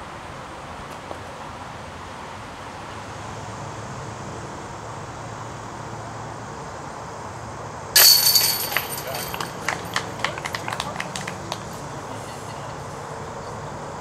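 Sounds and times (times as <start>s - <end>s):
metallic chain jingle: 8.0s - 10.2s.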